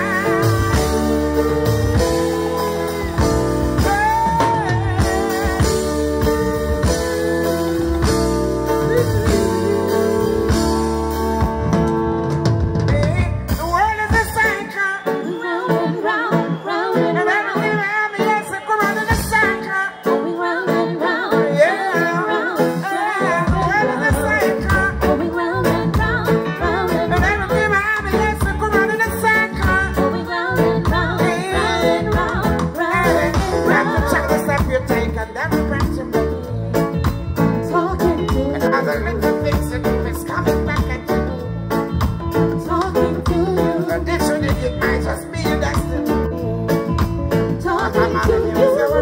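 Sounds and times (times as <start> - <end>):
man singing: 0.0 - 11.0, 12.8 - 15.6, 17.2 - 20.2, 21.0 - 49.0
bass and drum beat: 0.0 - 14.8, 18.9 - 19.6, 22.6 - 49.0
reggae band playing: 0.0 - 49.0.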